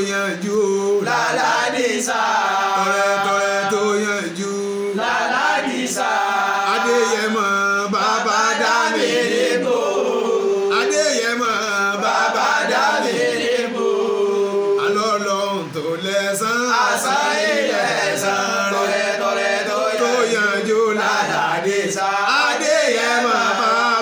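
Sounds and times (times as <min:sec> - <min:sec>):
man chanting a song: 0:00.0 - 0:24.0.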